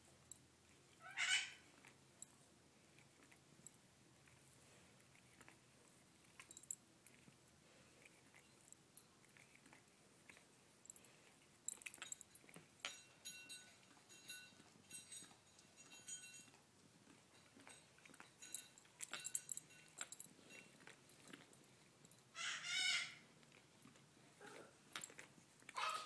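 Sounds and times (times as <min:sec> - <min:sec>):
collar tags clinking: 0:06.2 - 0:07.2, 0:10.3 - 0:22.4
dog licking wet smacking: 0:16.5 - 0:22.0
dog vocalization: 0:23.5 - 0:26.0.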